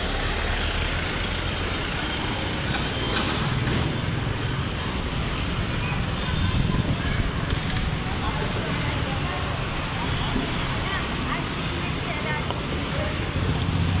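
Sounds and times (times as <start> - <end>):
road traffic noise: 0.0 - 14.0
vehicles passing close by: 0.0 - 14.0.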